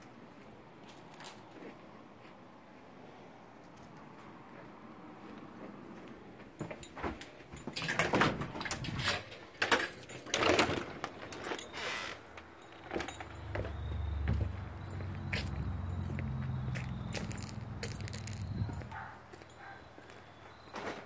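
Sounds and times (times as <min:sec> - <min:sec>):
door opening: 0:06.9 - 0:19.1.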